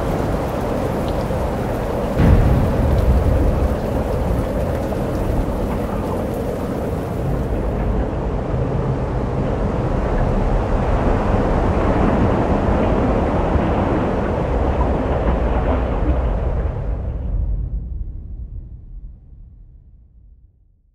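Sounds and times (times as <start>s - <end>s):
storm hiss: 0.0s - 8.3s
thunder rumble: 0.0s - 19.3s.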